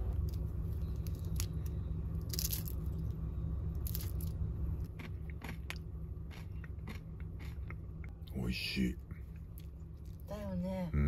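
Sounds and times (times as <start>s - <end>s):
steady low hum: 0.0s - 11.0s
sugar crust crackling: 0.1s - 3.2s.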